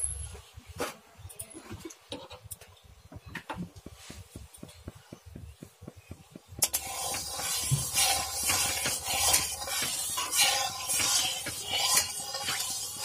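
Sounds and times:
oil hissing: 0:03.9 - 0:13.0
metal spatula scraping a pan: 0:06.6 - 0:13.0.

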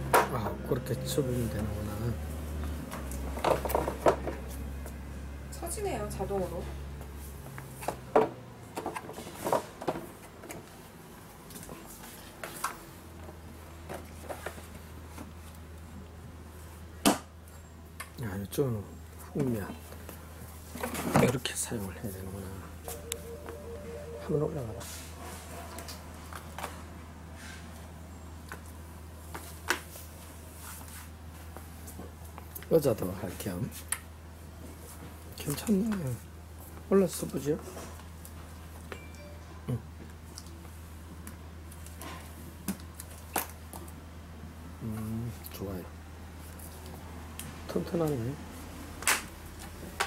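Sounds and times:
low steady hum: 0:22.8 - 0:25.2.

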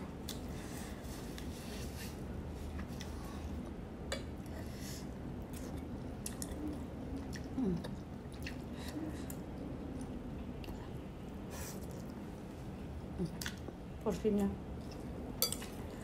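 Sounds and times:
chewing and wet mouth sounds: 0:05.4 - 0:12.2, 0:13.2 - 0:13.8.

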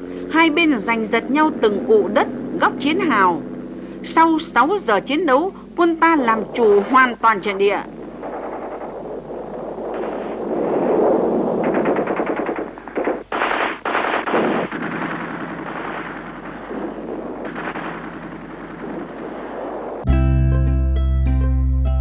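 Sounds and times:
machine-gun fire: 0:06.4 - 0:20.1.

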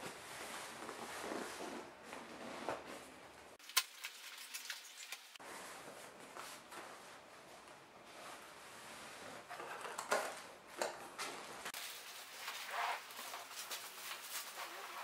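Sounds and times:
cardboard rubbing and scraping: 0:11.8 - 0:15.0.

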